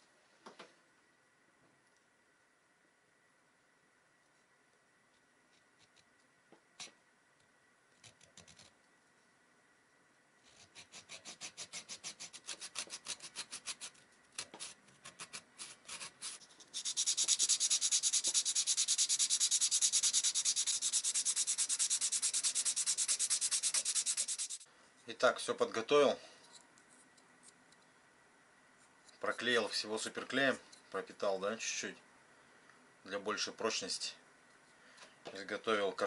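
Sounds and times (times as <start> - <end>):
rasping of wood sanding by hand: 10.8 - 24.6.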